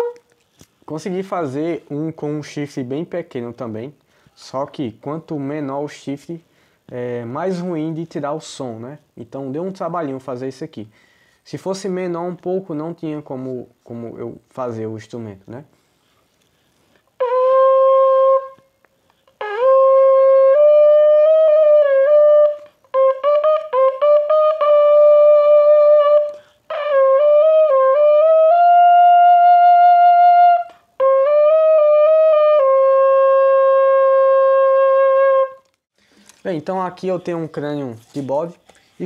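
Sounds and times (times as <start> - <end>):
goat-horn trumpet playing notes: 0.0 - 0.3, 17.2 - 18.7, 19.4 - 35.8.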